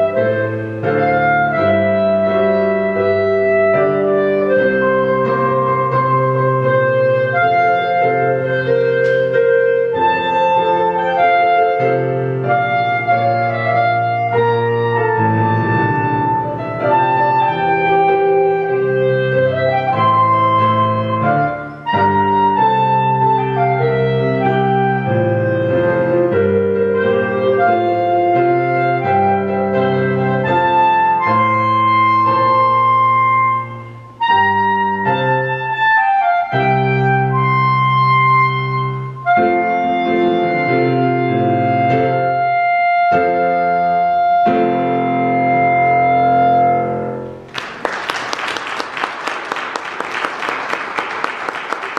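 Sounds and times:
clarinet melody: 0.0s - 51.9s
keyboard accompaniment: 0.0s - 51.9s
applause: 47.5s - 51.9s.

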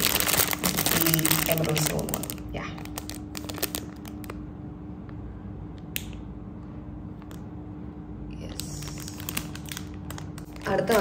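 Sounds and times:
faint plastic rustling: 0.0s - 4.4s, 8.4s - 11.0s
steady low hum: 0.0s - 11.0s.

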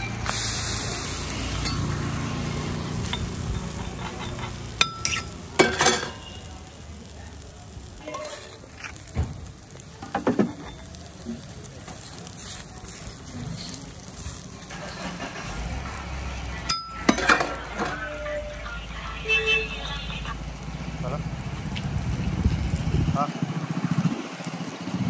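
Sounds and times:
faint sizzling in oil: 0.1s - 22.8s
metal spatula scraping griddle: 1.4s - 6.5s, 8.0s - 9.1s, 11.9s - 16.0s.

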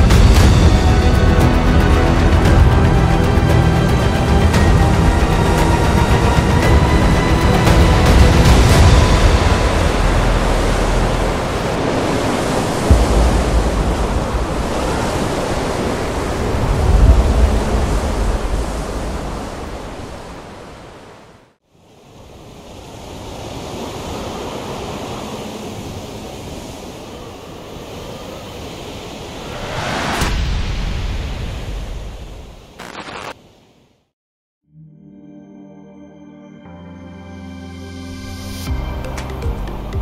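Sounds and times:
rushing wind noise: 0.0s - 21.2s, 22.2s - 33.0s
low thump: 12.9s - 14.8s.

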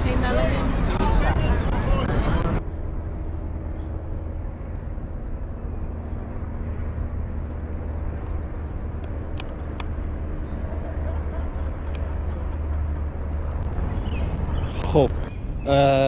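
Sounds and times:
steady low rumble: 0.0s - 16.0s
sharp clicks: 9.0s - 10.0s.

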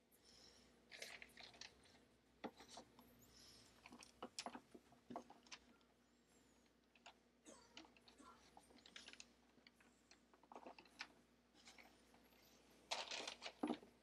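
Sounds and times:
paper rustling: 10.4s - 13.9s.

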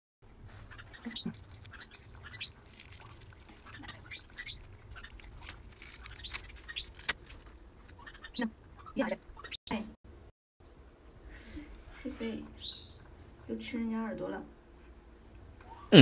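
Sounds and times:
plastic wrapper crinkling: 1.1s - 7.6s.

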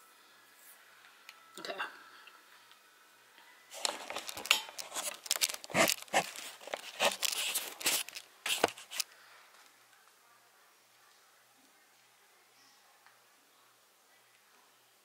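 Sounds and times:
camera handling rustles: 3.8s - 9.0s.

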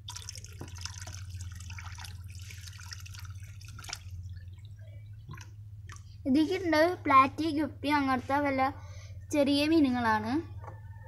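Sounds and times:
water pouring into a tub: 0.0s - 6.1s
water splashing and trickling: 0.0s - 6.4s.

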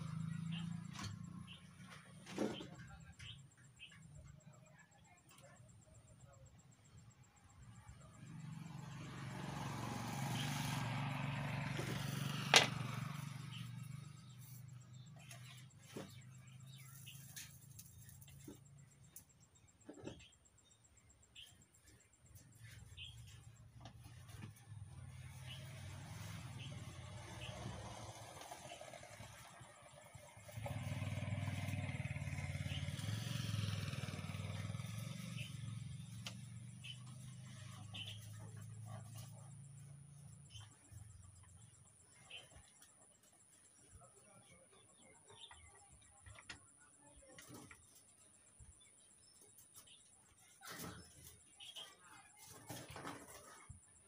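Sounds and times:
passing motor vehicle engine: 0.0s - 4.0s, 5.7s - 20.2s, 21.0s - 42.9s.

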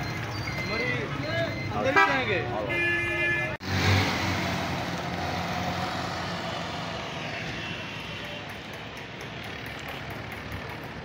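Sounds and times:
street noise: 0.0s - 11.0s
vehicle engine hum: 3.6s - 11.0s.

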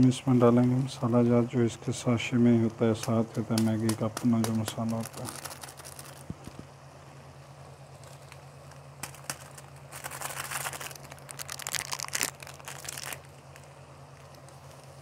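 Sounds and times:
plastic sachet crinkling and tearing: 4.1s - 6.5s, 9.0s - 13.7s.

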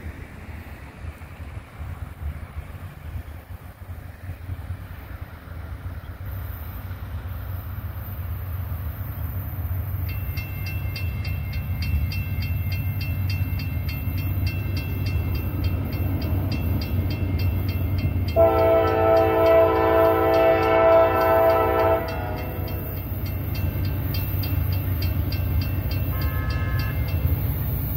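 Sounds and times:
freight train rumble: 0.0s - 27.9s
railroad crossing bell ringing: 9.5s - 27.9s.

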